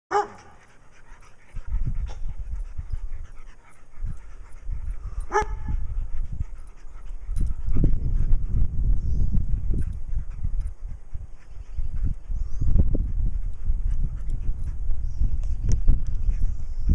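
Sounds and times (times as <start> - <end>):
dog barking: 0.1 - 0.6, 5.3 - 5.8.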